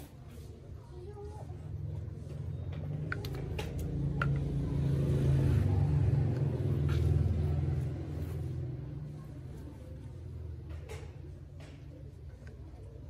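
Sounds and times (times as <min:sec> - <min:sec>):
passing vehicle engine rumble: 0:01.6 - 0:11.6.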